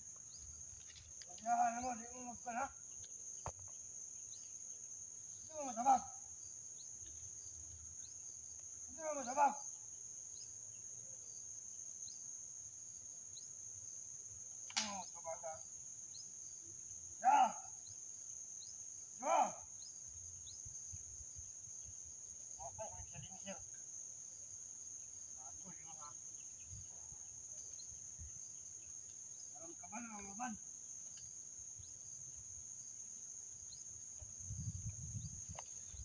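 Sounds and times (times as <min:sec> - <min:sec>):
insects droning: 0:00.0 - 0:36.0
sharp snap: 0:14.7 - 0:15.0.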